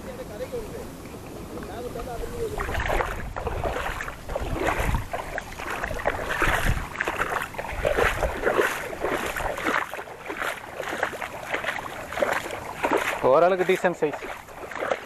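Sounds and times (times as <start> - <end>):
water splashing and sloshing: 0.0 - 15.0
wind rumble on microphone: 0.1 - 15.0.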